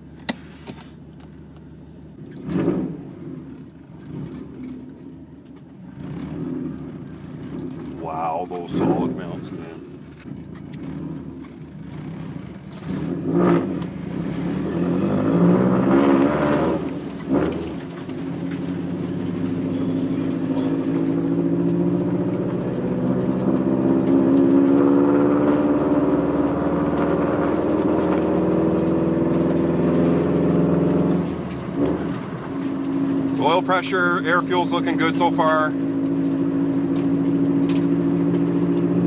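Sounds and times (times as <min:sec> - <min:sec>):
car engine revving in cabin: 0:00.0 - 0:39.0.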